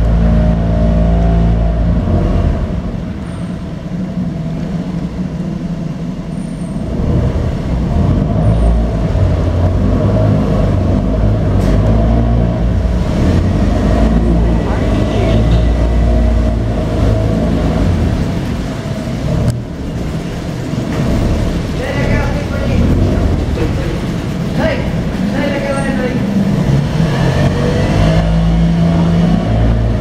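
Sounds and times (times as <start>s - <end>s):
boat motor running: 0.0s - 30.0s.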